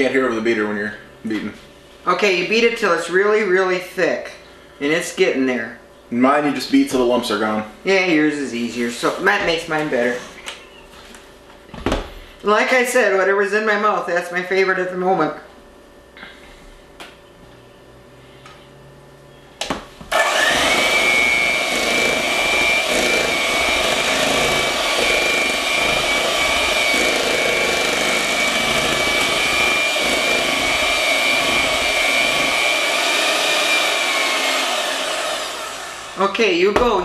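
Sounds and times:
electric hand mixer whining: 20.1s - 36.8s.

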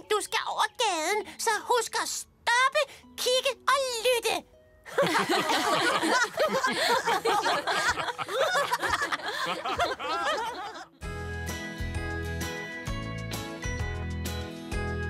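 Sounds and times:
cartoon characters laughing: 5.0s - 11.0s.

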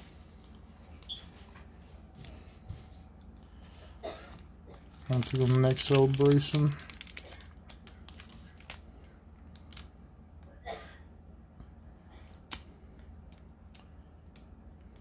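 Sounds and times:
foil pack crinkling: 4.7s - 9.9s.

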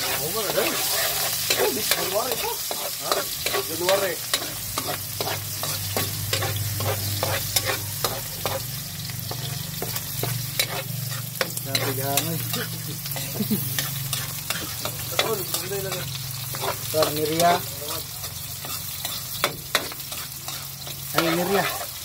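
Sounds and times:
metal spatula scraping wok: 0.0s - 22.0s
oil sizzling: 0.0s - 22.0s.

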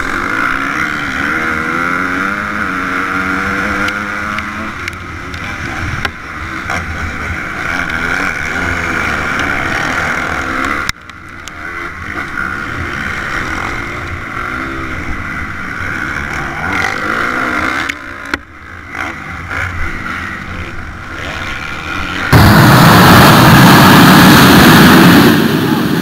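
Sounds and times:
motocross bike engine revving: 0.0s - 26.0s
loud rushing noise: 22.3s - 26.0s.

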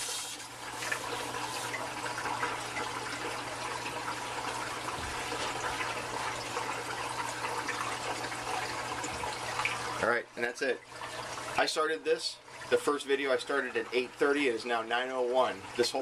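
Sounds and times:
water running over screen: 0.0s - 11.9s.

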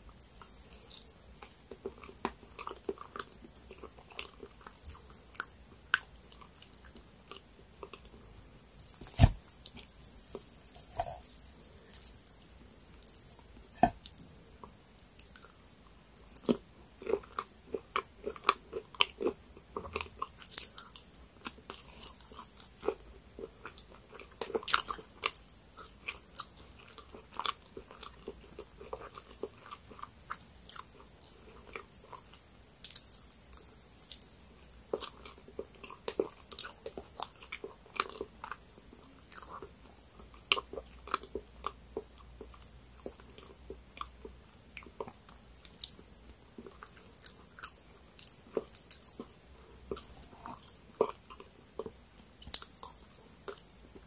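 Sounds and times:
wet chewing: 0.4s - 8.2s, 8.8s - 46.0s, 46.6s - 54.0s
crunching bites: 8.8s - 14.2s.

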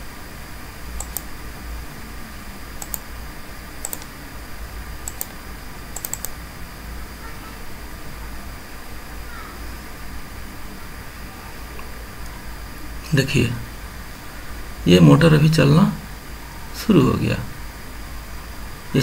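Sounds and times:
steady low hum: 0.0s - 19.0s
computer mouse clicks: 1.0s - 1.3s, 2.8s - 3.1s, 3.8s - 4.1s, 5.0s - 5.4s, 6.0s - 6.4s.

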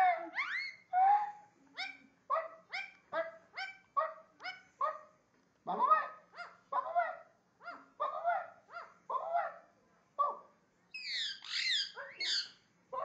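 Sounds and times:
parakeet high-pitched screeches: 0.0s - 0.8s, 11.0s - 12.6s
parakeet rough barking calls: 11.0s - 13.0s.

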